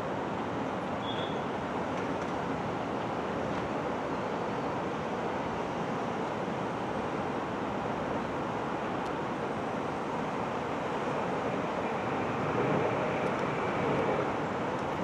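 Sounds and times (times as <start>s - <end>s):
jet engines roaring: 10.2s - 15.0s.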